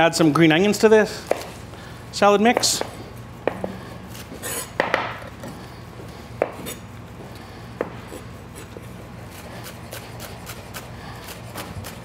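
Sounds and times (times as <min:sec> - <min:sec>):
knife chopping on wooden board: 0:01.3 - 0:01.5, 0:02.5 - 0:05.3.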